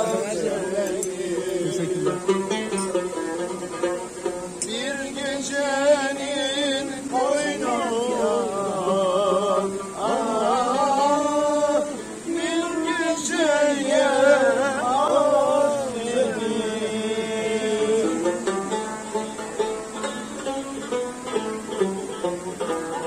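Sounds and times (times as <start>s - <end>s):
person singing ornamented phrases: 0.0s - 2.9s, 4.6s - 18.5s
music: 0.0s - 23.0s.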